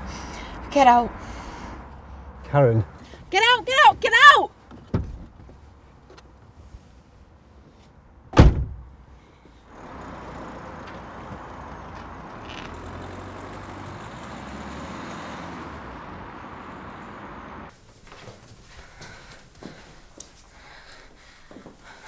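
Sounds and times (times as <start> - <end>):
car door slamming: 4.8 - 5.4, 8.3 - 8.9
car engine running: 9.8 - 17.7.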